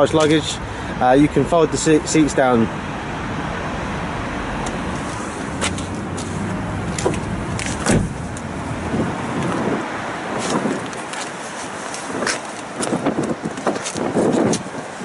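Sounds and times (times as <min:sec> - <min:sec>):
outdoor traffic noise: 0:00.0 - 0:15.0
tailgate shutting with a thud: 0:07.0 - 0:08.4.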